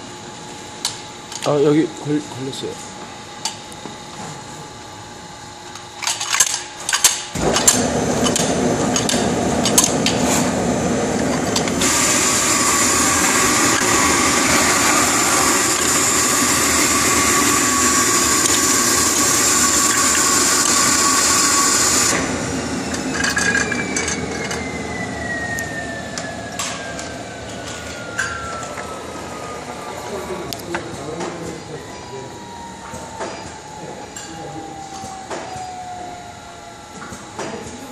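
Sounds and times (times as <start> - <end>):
rushing mechanical noise: 5.9 - 37.6
loud high hiss: 7.4 - 24.0
thin whine falling in pitch: 11.2 - 30.6.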